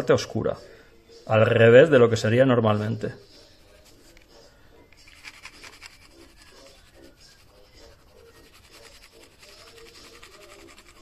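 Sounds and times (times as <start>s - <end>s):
pencil scratching on card: 5.0s - 11.0s.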